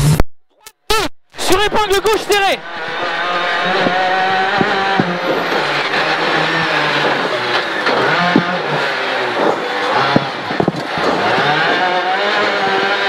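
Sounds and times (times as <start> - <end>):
rally car engine revving: 1.4 - 13.0
sharp knocks: 2.6 - 11.9.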